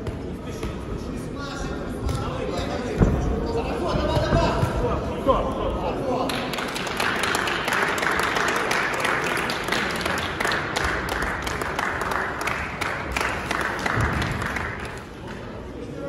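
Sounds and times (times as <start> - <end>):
spectators applauding: 6.2 - 15.2.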